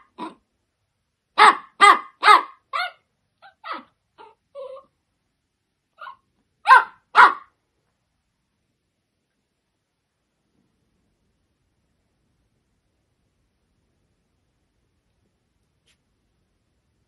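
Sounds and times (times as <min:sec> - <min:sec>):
dog barking sharply: 0:01.4 - 0:02.9, 0:06.7 - 0:07.5.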